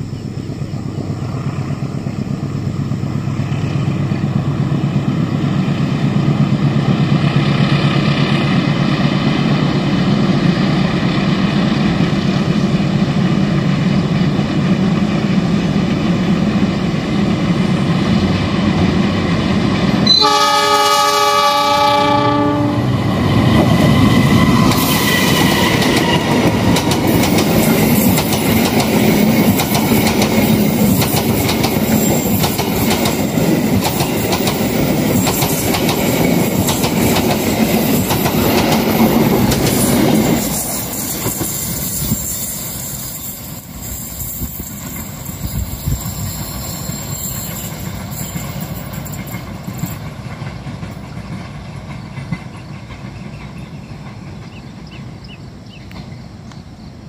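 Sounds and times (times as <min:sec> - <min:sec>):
diesel locomotive engine drone: 0:00.0 - 0:57.0
train horn blast: 0:20.0 - 0:22.9
train wheels clicking over rail joints: 0:23.0 - 0:56.8.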